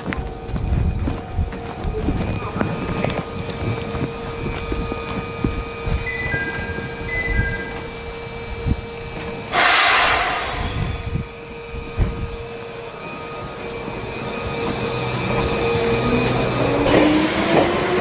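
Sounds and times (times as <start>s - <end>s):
train motor whine: 0.0s - 18.0s
compressed air hiss: 9.5s - 11.2s.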